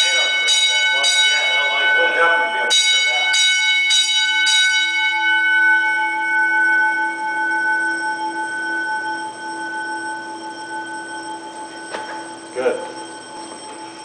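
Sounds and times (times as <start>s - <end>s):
fire alarm bell striking: 0.0s - 14.0s.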